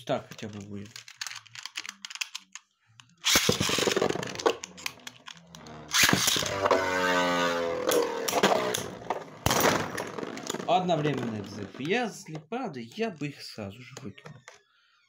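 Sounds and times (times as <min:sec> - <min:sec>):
spinning top launch: 0:03.2 - 0:05.0, 0:05.9 - 0:11.8
top whirring and scraping plastic: 0:03.2 - 0:12.0.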